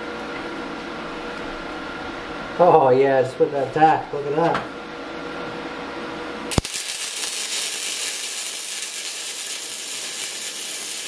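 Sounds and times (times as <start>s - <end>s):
welding arc crackling and hissing: 6.5s - 11.0s.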